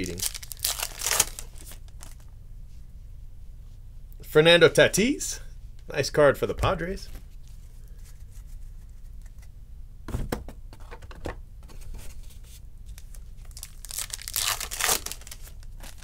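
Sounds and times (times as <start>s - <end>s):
foil wrapper tearing and crinkling: 0.0s - 2.2s, 13.0s - 16.0s.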